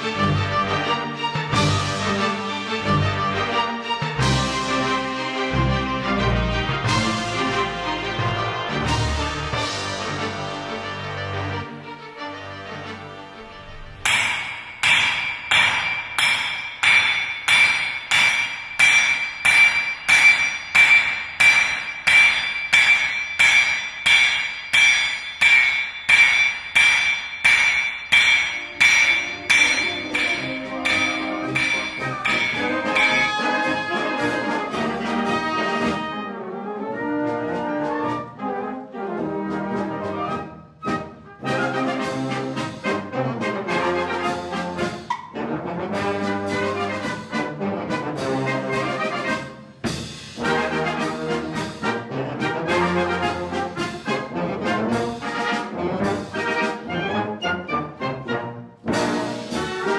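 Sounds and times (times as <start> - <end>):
brass music: 0.0 - 14.0, 28.5 - 59.9
hammer blows on anvil: 14.0 - 35.4.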